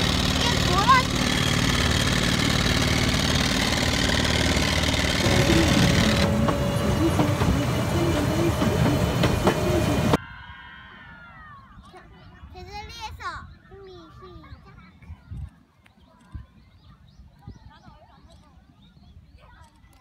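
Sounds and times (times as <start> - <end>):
boat motor running: 0.0 - 10.2
train clicking on track: 0.0 - 10.2.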